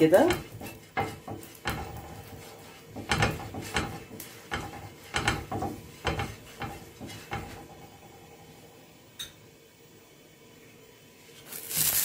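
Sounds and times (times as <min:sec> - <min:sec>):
brush scraping grill pan: 0:00.0 - 0:07.8.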